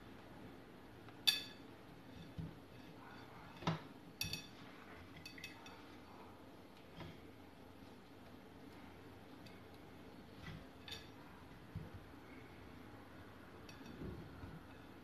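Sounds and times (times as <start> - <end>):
plate clinking: 13.6 - 15.0.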